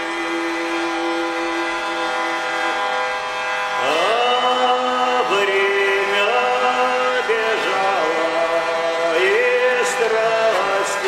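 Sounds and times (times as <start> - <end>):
hurdy-gurdy drone: 0.0 - 11.0
man singing: 3.8 - 11.0.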